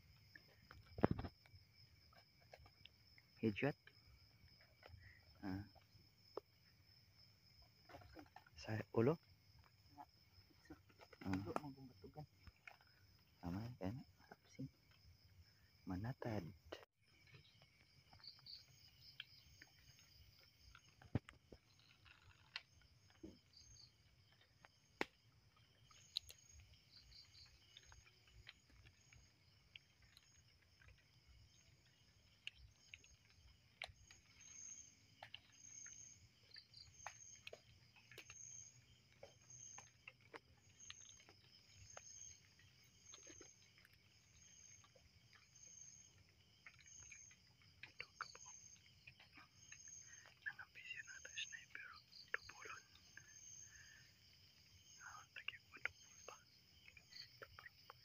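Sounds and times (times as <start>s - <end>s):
crickets and insects trilling: 0.0s - 58.0s
small clicks and rustles: 17.1s - 51.3s.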